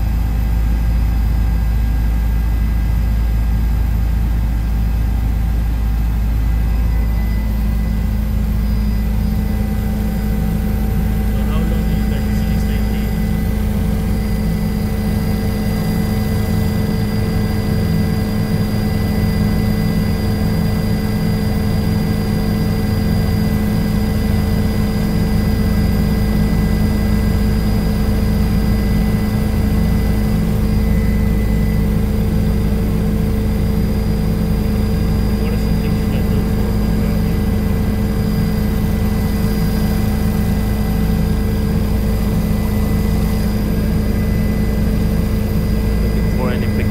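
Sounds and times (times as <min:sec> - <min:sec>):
helicopter engine and rotor drone: 0:00.0 - 0:46.9
thin high whine: 0:06.0 - 0:20.8, 0:27.4 - 0:46.9.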